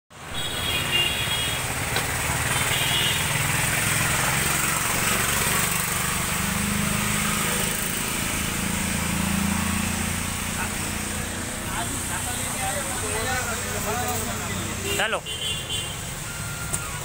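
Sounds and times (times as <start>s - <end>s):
engine-like drone: 1.7s - 14.7s.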